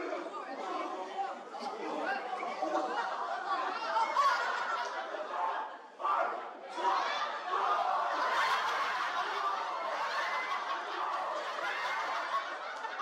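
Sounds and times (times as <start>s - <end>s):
audience laughing: 7.6s - 13.0s.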